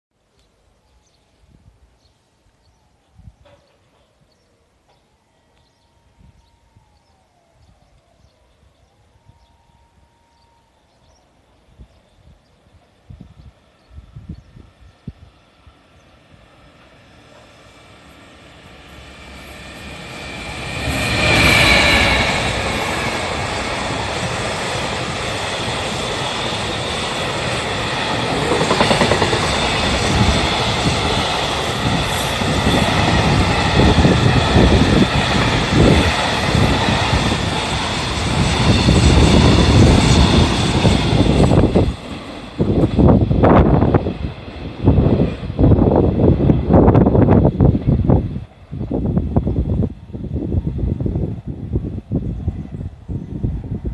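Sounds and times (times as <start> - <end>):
locomotive high tone: 5.0 - 11.8, 16.9 - 44.0
freight train passing: 8.6 - 53.9
wagons clacking over rail joints: 28.0 - 30.4.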